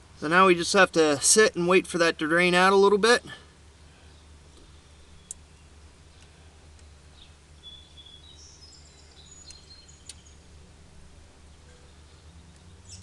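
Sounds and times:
low steady hum: 0.0s - 13.0s
faint ticks: 4.5s - 5.4s, 9.4s - 10.3s.

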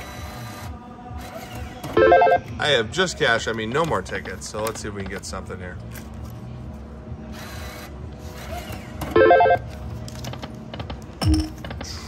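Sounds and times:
casino hum: 0.0s - 5.2s, 5.8s - 12.0s
slot machine electronic sounds: 2.0s - 2.4s, 9.2s - 9.6s, 11.2s - 11.7s.

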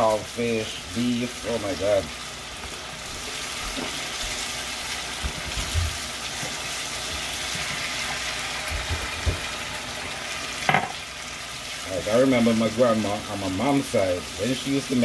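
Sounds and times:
sauce sizzling in a pot: 0.0s - 15.0s.

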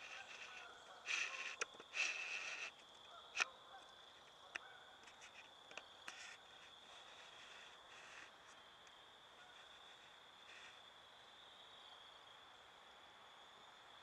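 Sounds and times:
sharp clicks: 0.0s - 2.8s
harsh buzzy bird calls: 0.0s - 8.6s, 9.4s - 10.8s.

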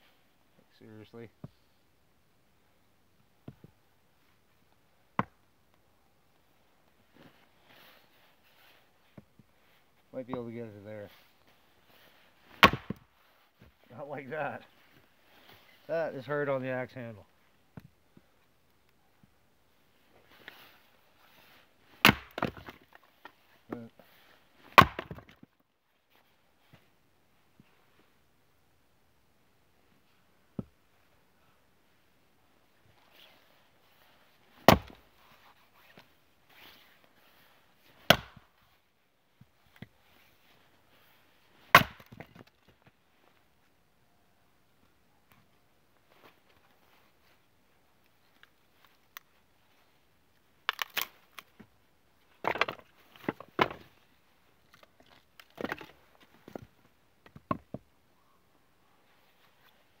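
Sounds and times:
axe chopping firewood: 5.2s - 5.4s, 12.5s - 13.0s, 21.9s - 23.0s, 24.6s - 25.4s, 34.6s - 35.0s, 38.0s - 38.5s, 41.7s - 42.4s
firewood clattering together: 22.0s - 23.4s, 24.6s - 25.5s, 52.4s - 53.9s, 55.0s - 56.7s.

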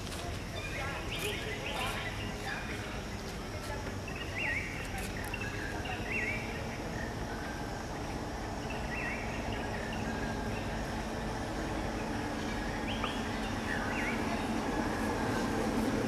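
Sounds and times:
high chirping calls: 8.6s - 11.1s.

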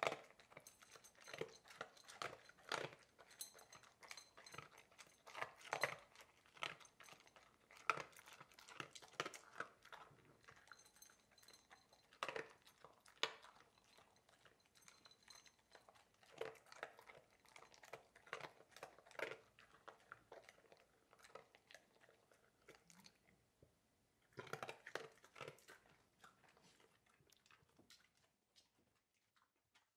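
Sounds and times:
dog crunching dry food: 0.0s - 23.3s, 24.3s - 29.9s.

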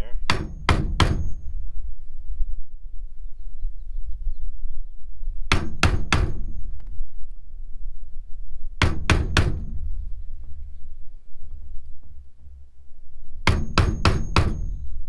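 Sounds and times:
low rumble: 0.0s - 15.0s
hammer striking wooden block: 0.3s - 1.4s, 13.5s - 14.8s.

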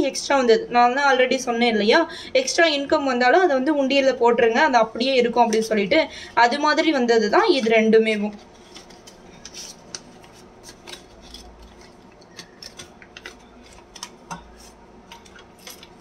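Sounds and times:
paper banknotes rustling: 7.4s - 16.0s.

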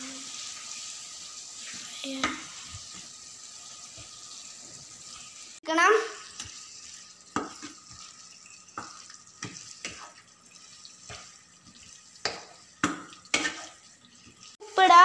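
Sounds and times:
faint frying sizzle: 0.0s - 15.0s
spatula knocking and scraping pan: 7.3s - 14.6s.

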